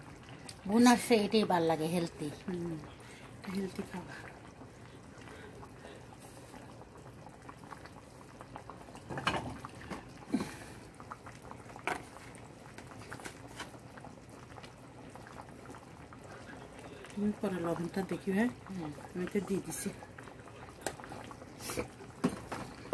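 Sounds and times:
food bubbling in a pot: 0.0 - 22.9.

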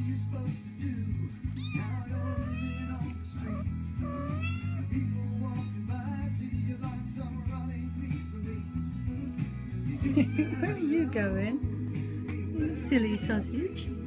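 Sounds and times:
background music: 0.0 - 14.0
kittens meowing: 1.4 - 5.0, 10.0 - 11.0.

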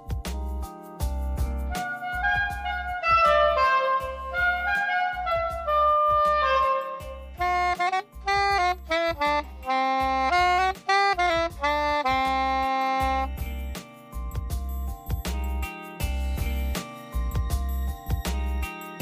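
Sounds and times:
soprano saxophone playing: 1.7 - 13.3.

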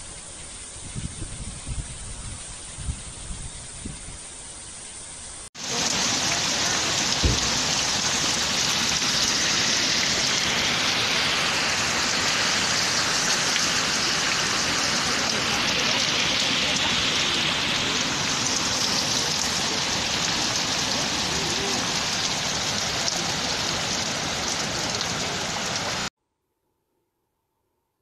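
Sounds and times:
wind rumble on microphone: 0.0 - 4.6
storm wind: 0.7 - 4.6
heavy rain on flooded street: 5.6 - 26.1.

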